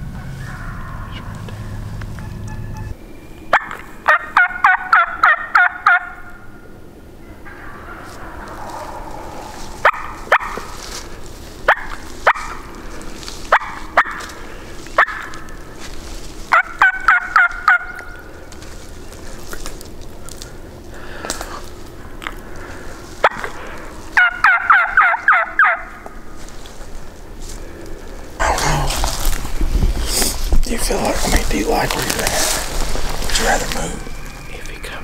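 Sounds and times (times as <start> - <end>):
rasping turkey yelps: 0.2 - 2.9, 3.5 - 6.4, 7.2 - 10.8, 11.7 - 12.8, 13.4 - 15.7, 16.5 - 18.3, 23.2 - 26.2
turkey mouth call clucks: 16.5 - 18.3, 24.2 - 26.1.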